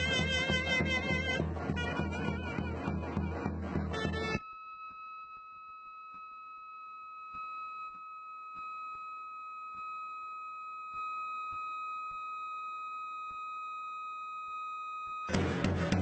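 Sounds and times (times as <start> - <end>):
faint drum beats: 0.0 - 4.4, 15.3 - 16.0
loud music: 15.3 - 16.0.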